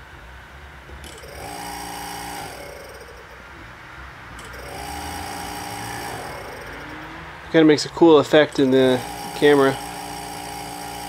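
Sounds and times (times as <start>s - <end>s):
freezer compressor buzzing: 0.7s - 11.0s.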